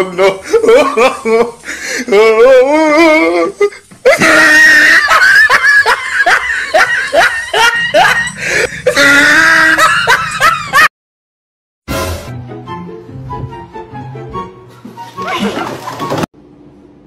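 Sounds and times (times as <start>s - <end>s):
loud laughter: 0.0s - 1.6s, 3.5s - 10.9s.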